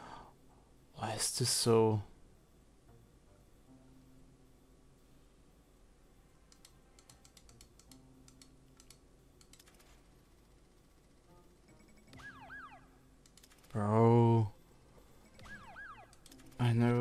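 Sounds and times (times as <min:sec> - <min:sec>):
faint rapid keyboard clicks: 0:06.5 - 0:12.2, 0:13.2 - 0:13.9.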